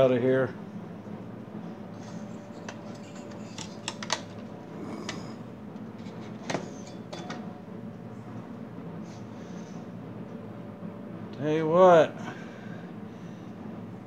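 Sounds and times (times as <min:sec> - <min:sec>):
steady low hum: 0:00.0 - 0:14.0
hardware parts clicking and tapping: 0:02.6 - 0:04.5.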